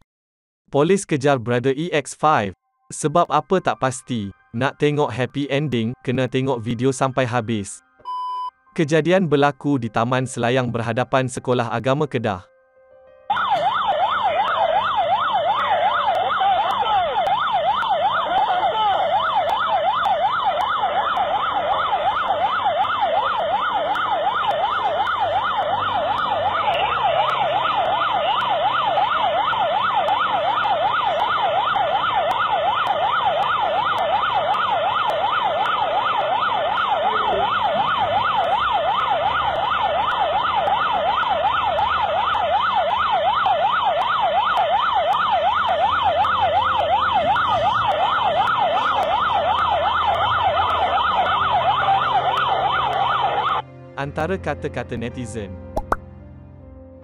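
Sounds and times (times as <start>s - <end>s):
police siren yelping: 13.3s - 53.6s.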